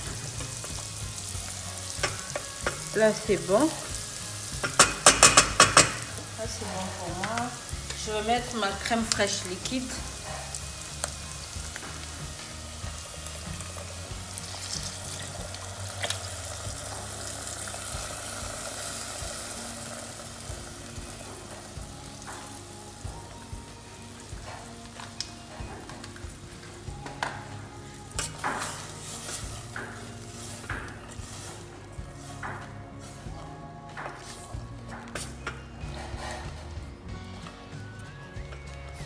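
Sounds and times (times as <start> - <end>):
bacon and onion sizzling: 0.0 - 39.0
wooden spoon knocking on pan: 4.6 - 6.2.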